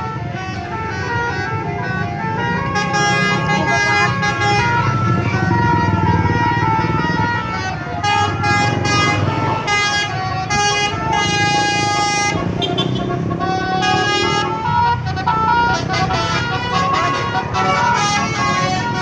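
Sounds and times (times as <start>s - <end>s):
vehicle engines rumbling: 0.0s - 19.0s
multi-tone musical horn tune: 6.8s - 19.0s.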